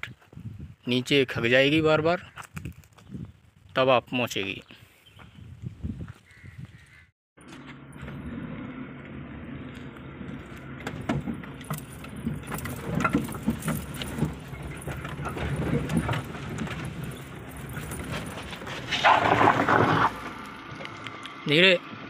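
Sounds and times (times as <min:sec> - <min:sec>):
van engine low note: 0:07.4 - 0:19.0
jingling rattles: 0:11.3 - 0:19.2.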